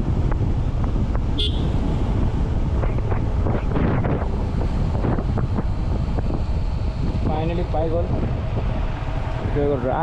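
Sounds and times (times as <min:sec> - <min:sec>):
motorcycle engine: 0:00.0 - 0:10.0
wind buffeting microphone: 0:00.0 - 0:10.0.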